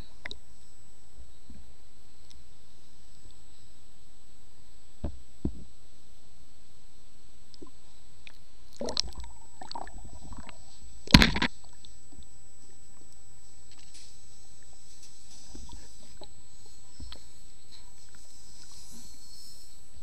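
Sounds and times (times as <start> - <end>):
faint high whine: 0.0 - 20.0
water gurgling and sloshing: 7.5 - 20.0
muffled underwater knocks: 11.1 - 11.5
thud-like burst: 11.1 - 11.5.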